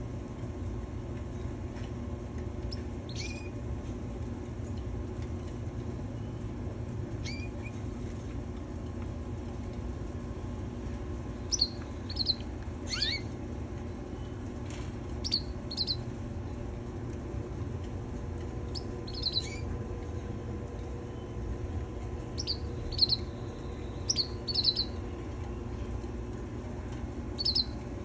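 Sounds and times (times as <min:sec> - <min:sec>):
steady low hum: 0:00.0 - 0:28.0
canaries chirping: 0:02.7 - 0:03.5, 0:11.5 - 0:13.3, 0:15.2 - 0:16.1, 0:18.7 - 0:19.7, 0:22.3 - 0:25.0, 0:27.4 - 0:27.8.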